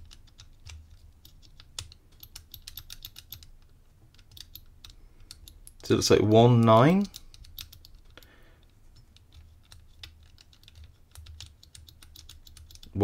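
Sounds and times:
padlock dials clicking: 0.0s - 13.0s.

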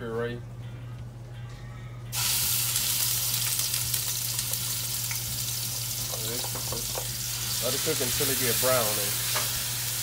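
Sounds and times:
onion puree sizzling in oil: 2.1s - 10.0s.

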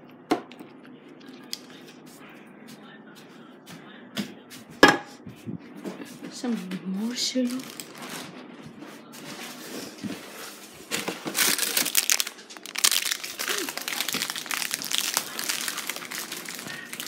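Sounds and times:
plastic packaging crinkling: 7.4s - 8.3s, 10.5s - 17.0s.

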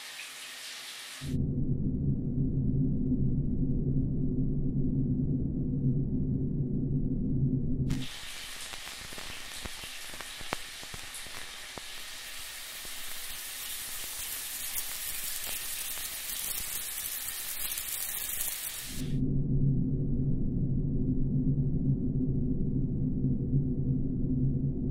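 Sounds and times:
shower water running: 0.0s - 1.4s, 7.9s - 19.1s
water drops ticking: 8.0s - 18.9s.

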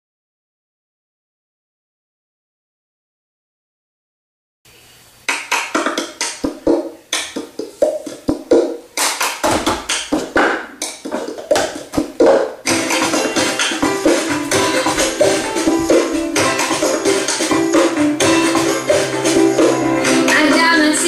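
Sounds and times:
hand claps: 5.3s - 15.3s.

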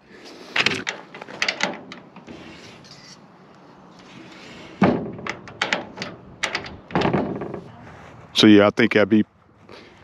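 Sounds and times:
metal bolt lock clicks and knocks: 0.6s - 2.3s, 4.8s - 7.6s
soft rustle: 7.4s - 8.6s.

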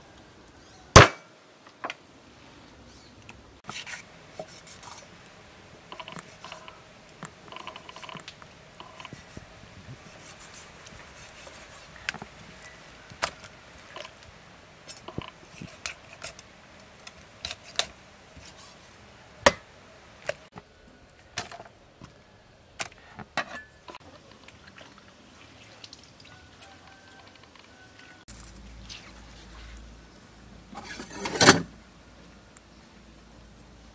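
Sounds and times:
knife cutting and scraping: 3.6s - 5.1s, 10.0s - 12.3s, 14.9s - 16.4s, 17.1s - 18.9s.

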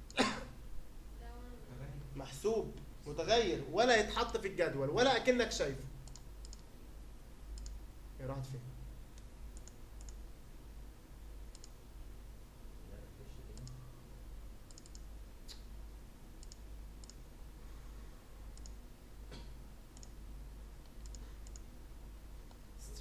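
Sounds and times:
steady low hum: 0.0s - 23.0s
computer mouse clicking: 6.0s - 6.7s, 7.5s - 7.8s, 9.2s - 10.2s, 11.5s - 11.8s, 13.6s - 13.8s, 14.7s - 15.7s, 16.4s - 17.2s, 18.6s - 18.8s, 19.9s - 20.2s, 20.8s - 21.7s.

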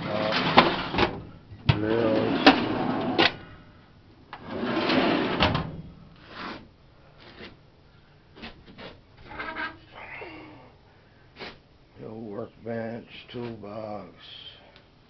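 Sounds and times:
metal drawers sliding: 0.0s - 3.4s, 4.4s - 5.8s.

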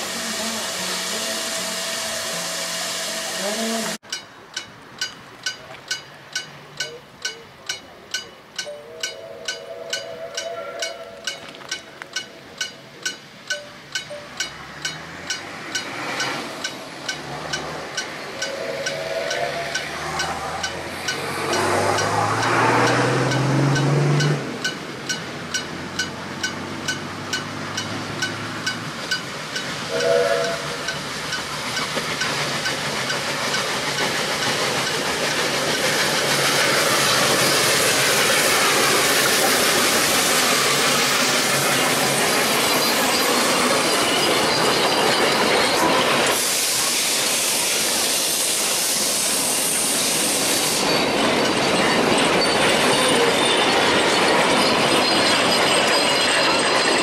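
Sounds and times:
steam hiss: 0.0s - 4.0s, 13.1s - 26.8s, 27.4s - 55.9s
steam whistle: 0.0s - 4.0s, 8.7s - 11.4s, 18.4s - 20.6s, 29.9s - 31.0s
steam locomotive passing: 0.0s - 57.0s
wheels clacking over rail joints: 3.5s - 57.0s.

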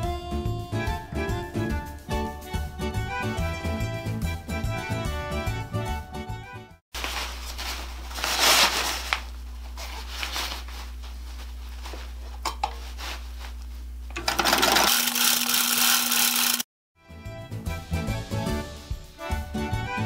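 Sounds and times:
sewing machine motor running: 14.2s - 16.7s.

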